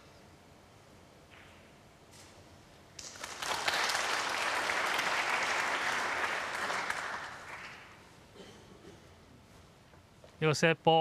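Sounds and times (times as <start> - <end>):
audience applauding: 3.0 - 8.0.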